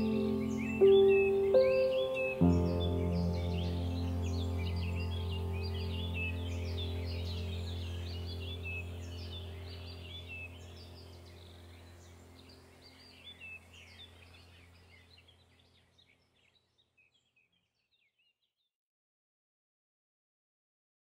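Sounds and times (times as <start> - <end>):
small songbirds chirping: 0.0 - 18.7
steady low hum: 2.5 - 14.8.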